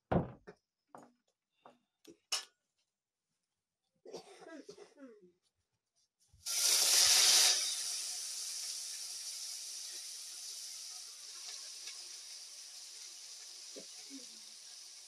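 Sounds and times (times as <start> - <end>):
leafy greens sizzling in hot pot: 6.4 - 15.0.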